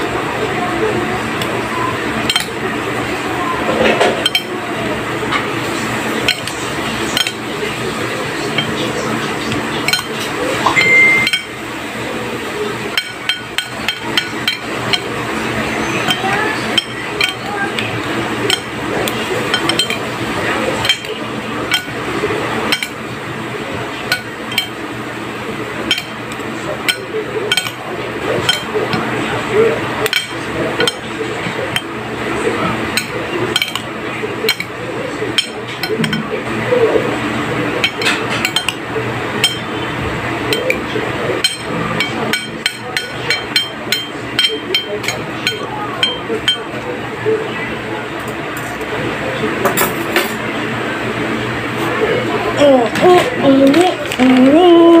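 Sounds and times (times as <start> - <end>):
metal spoon clinking on ceramic plate: 10.7 - 11.5.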